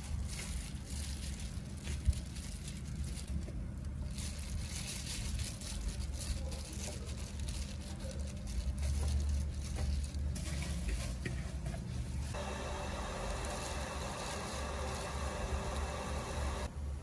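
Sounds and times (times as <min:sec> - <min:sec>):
plastic glove crinkling: 0:00.0 - 0:11.3, 0:11.9 - 0:16.7
wet food handling: 0:00.0 - 0:11.3
low steady rumble: 0:00.0 - 0:17.0.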